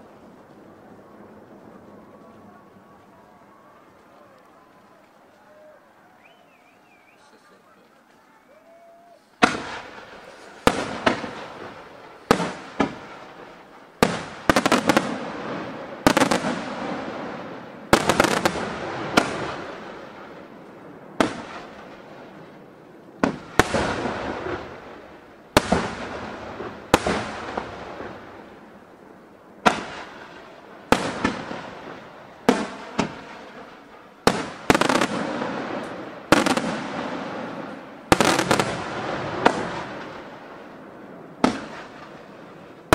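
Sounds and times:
firework shells bursting: 0:09.4 - 0:17.2.

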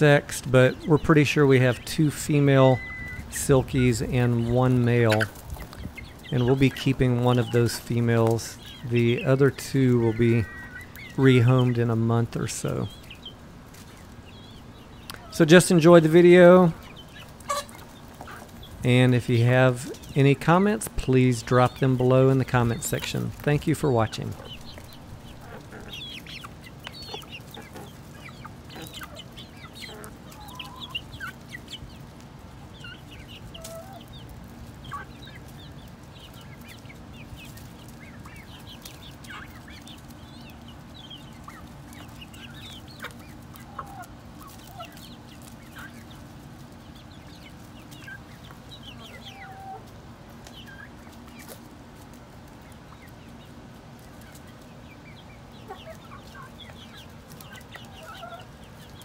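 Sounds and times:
chickens peeping and clucking: 0:00.0 - 0:59.0.

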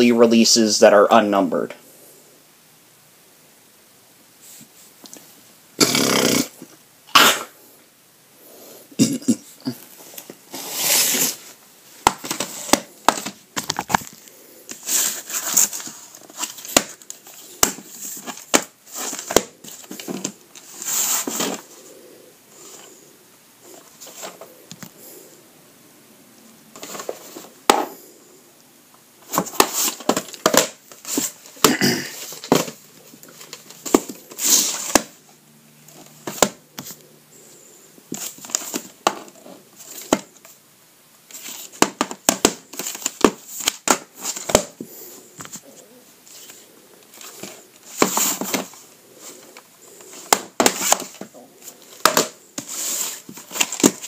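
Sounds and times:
rustling scrapes: 0:10.0 - 0:11.6, 0:14.0 - 0:21.9, 0:32.1 - 0:35.0, 0:52.6 - 0:54.0.

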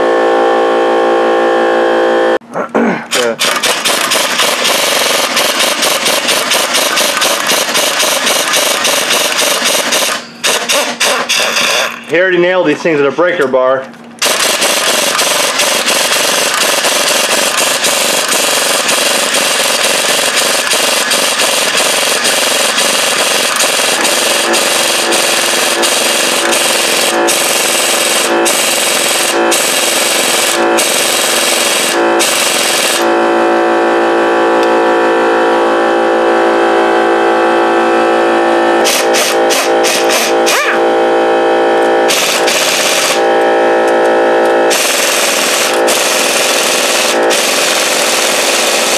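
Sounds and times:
air impact wrench hammering: 0:03.1 - 0:12.1, 0:14.2 - 0:33.2, 0:38.8 - 0:40.8, 0:41.8 - 0:48.9
tool clicks: 0:03.1 - 0:12.1
air tool spinning whine: 0:03.2 - 0:12.1, 0:14.2 - 0:33.7, 0:38.0 - 0:48.9.

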